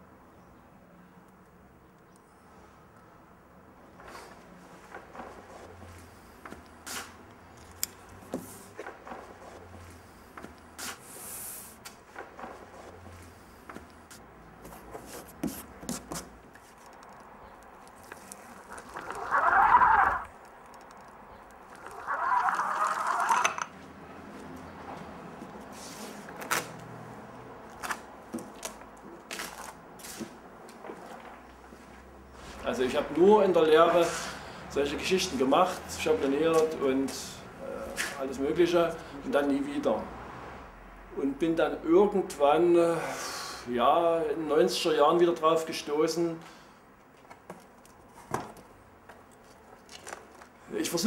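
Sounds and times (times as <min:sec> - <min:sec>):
small taps and clicks: 0:16.0 - 0:18.4.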